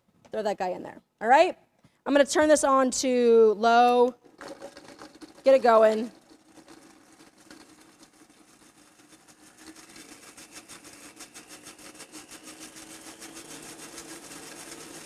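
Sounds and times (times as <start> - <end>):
blender motor whirring: 4.2 - 15.0.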